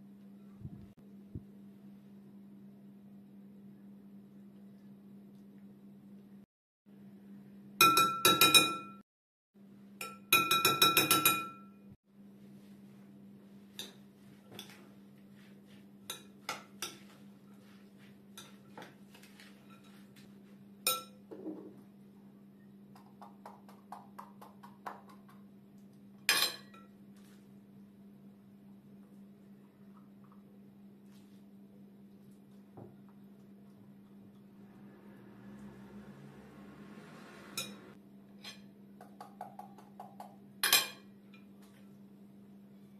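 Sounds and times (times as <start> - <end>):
metal spoon clinking on glass bowl: 10.0 - 11.7, 20.9 - 21.2.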